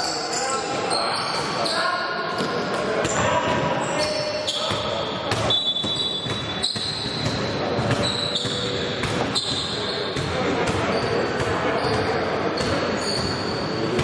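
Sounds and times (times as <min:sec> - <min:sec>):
shoe squeaks: 0:00.0 - 0:14.0
basketball bouncing: 0:04.7 - 0:11.5.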